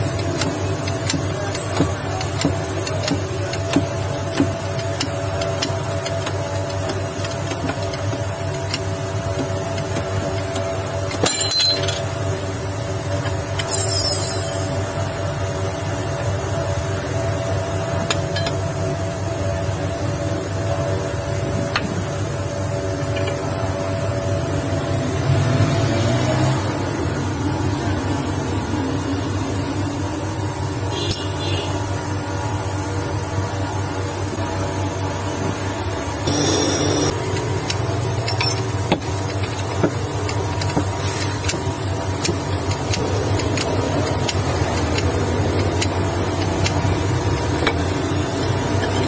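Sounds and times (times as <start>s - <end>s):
metal gear clinking on bench: 11.1s - 12.2s, 13.6s - 14.8s.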